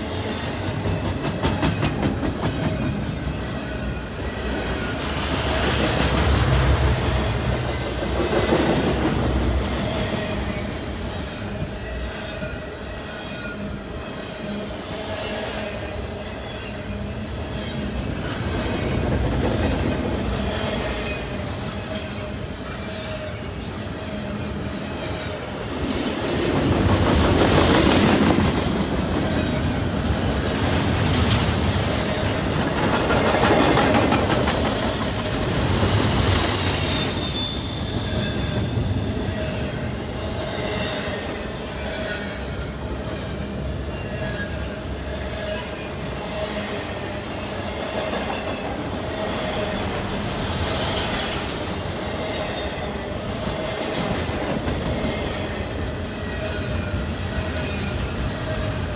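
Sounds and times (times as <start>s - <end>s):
freight train wheels clattering: 0.6s - 11.2s, 25.0s - 41.8s, 47.5s - 56.0s
high wheel squeal: 33.6s - 46.1s.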